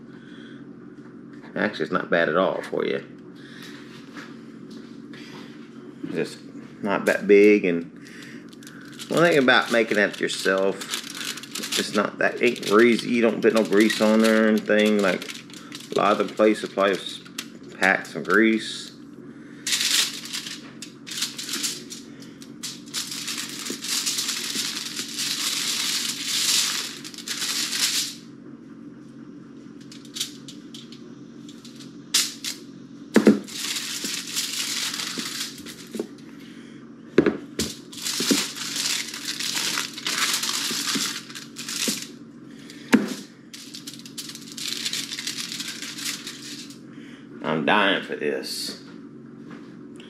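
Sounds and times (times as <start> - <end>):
steady low hum: 0.0 - 50.0
aluminium foil crinkling: 8.5 - 18.9, 19.7 - 28.2, 29.8 - 32.6, 33.2 - 36.2, 37.6 - 42.1, 42.7 - 46.8.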